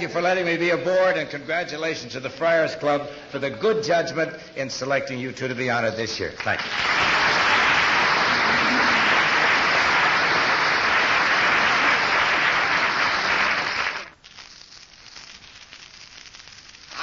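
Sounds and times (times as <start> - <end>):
audience applauding: 6.4 - 14.1.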